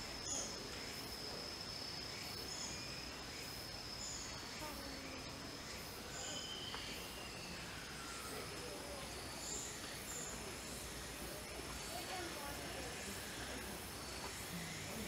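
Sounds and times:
insect high chirps: 0.0s - 15.0s.

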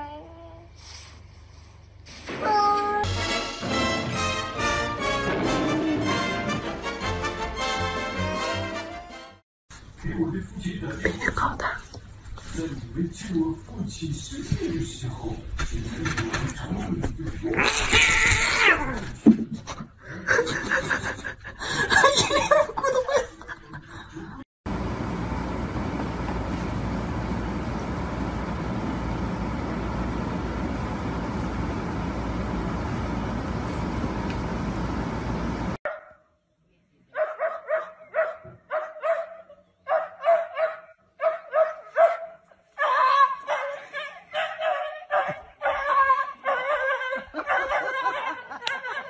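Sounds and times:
cat crying out: 17.6s - 19.0s
person laughing: 20.0s - 24.4s
small dog barking: 35.9s - 36.2s, 37.2s - 48.2s.

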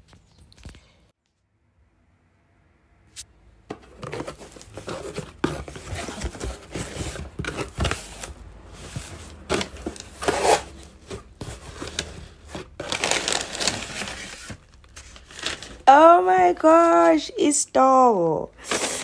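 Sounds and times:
packaging rustling and crinkling: 3.7s - 15.9s, 18.6s - 19.0s.

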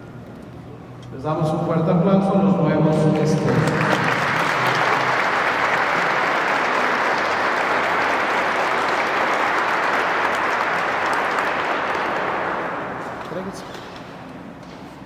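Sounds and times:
congregation applauding: 3.0s - 13.4s.

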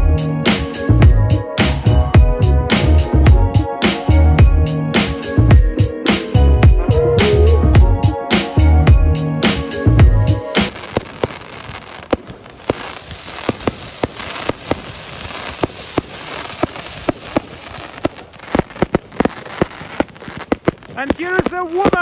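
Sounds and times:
crackle and hiss of sparks: 10.6s - 22.0s
firework bangs: 10.6s - 22.0s.

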